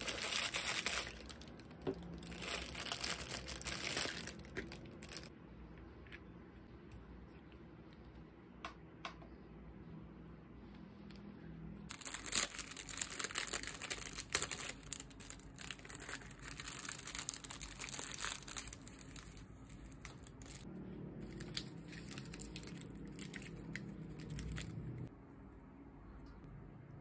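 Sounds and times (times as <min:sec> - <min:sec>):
plastic packaging crinkling: 0:00.0 - 0:05.3, 0:11.9 - 0:24.7.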